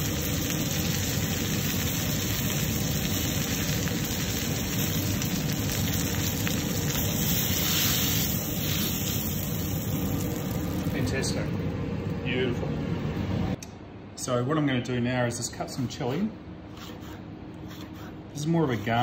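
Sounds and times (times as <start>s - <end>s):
meat sizzling in a frying pan: 0.0s - 11.0s.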